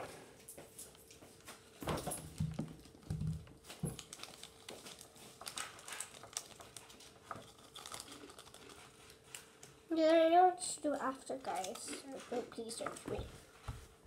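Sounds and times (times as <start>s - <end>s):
plastic packet crinkling: 2.3s - 9.6s.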